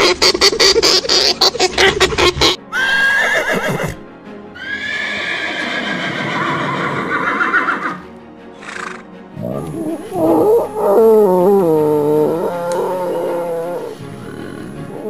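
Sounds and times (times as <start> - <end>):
horse whinnying: 2.7 - 4.0, 4.6 - 8.0, 8.6 - 14.9
breathy snort: 8.6 - 15.0.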